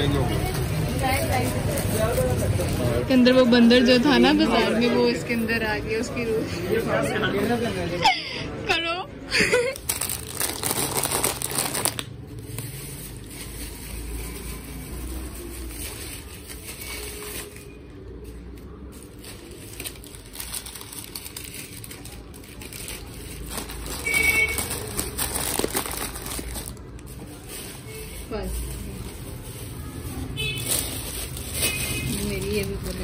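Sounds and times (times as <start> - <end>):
plastic wrapping crinkling: 9.5 - 33.0.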